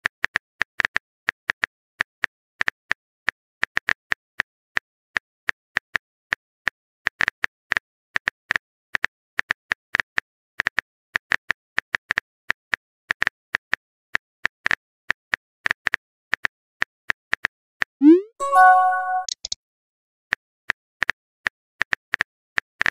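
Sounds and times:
chime: 0:18.4 - 0:19.3.

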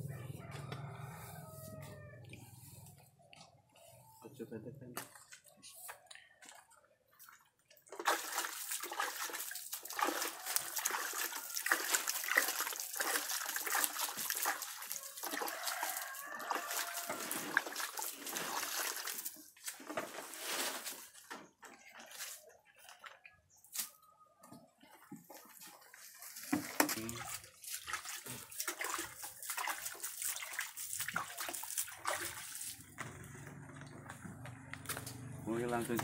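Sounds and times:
water spattering on a granular pile: 0:08.0 - 0:20.8, 0:26.6 - 0:32.9.

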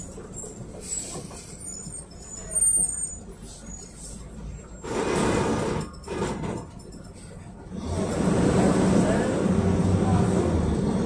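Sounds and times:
bus engine low rumble: 0:00.0 - 0:11.0
body rattles and squeaks: 0:00.2 - 0:04.0
brief noise with high squeal: 0:00.4 - 0:04.2.

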